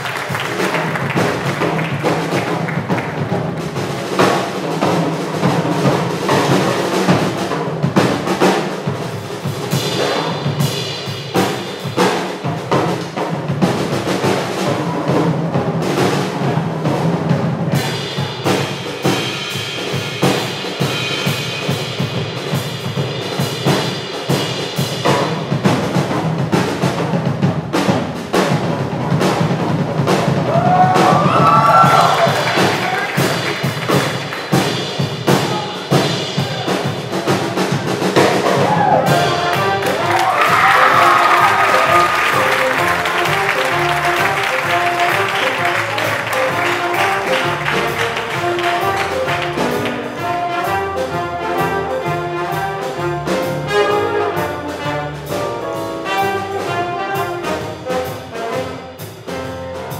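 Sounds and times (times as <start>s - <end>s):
drum kit: 0.0s - 59.9s
piano: 0.0s - 59.9s
upright bass: 38.8s - 57.8s
saxophone: 39.0s - 59.0s.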